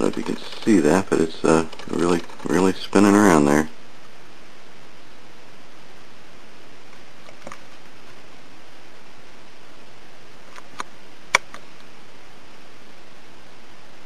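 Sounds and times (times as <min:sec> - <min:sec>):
steady hiss: 0:00.0 - 0:14.0
small sharp clicks: 0:10.5 - 0:11.9.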